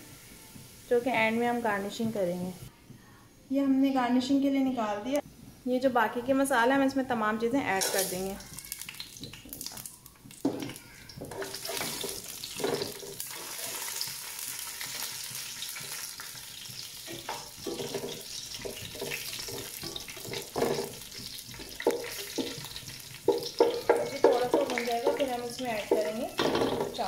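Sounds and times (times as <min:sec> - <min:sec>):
spices sizzling in hot oil: 0:00.0 - 0:02.7, 0:06.7 - 0:27.0
spatula scraping a pan: 0:10.4 - 0:27.0.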